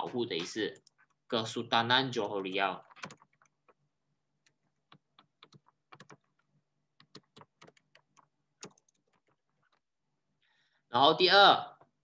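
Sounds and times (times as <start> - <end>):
keyboard typing clicks: 2.8 - 3.8, 4.4 - 9.8.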